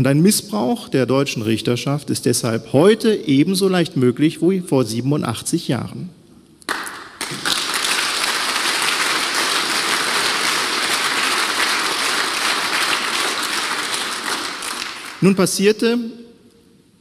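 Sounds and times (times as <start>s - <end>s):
audience applauding: 6.7s - 15.4s.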